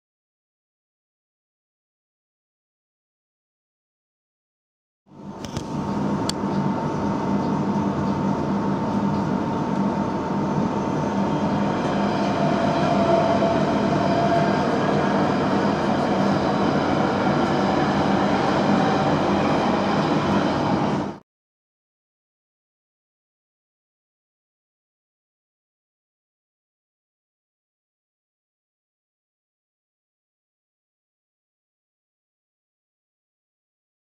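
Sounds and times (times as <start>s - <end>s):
train rumble inside carriage: 5.1s - 21.2s.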